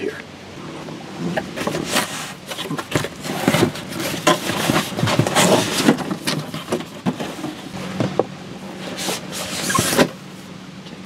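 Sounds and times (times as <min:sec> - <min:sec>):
cardboard scraping and rustling: 0:00.7 - 0:10.3.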